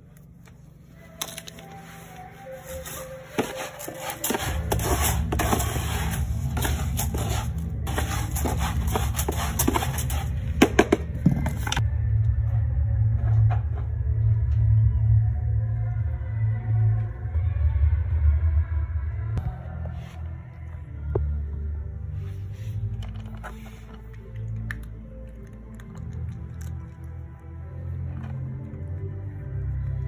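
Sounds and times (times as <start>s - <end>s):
scoop scraping cat litter: 1.8s - 10.9s.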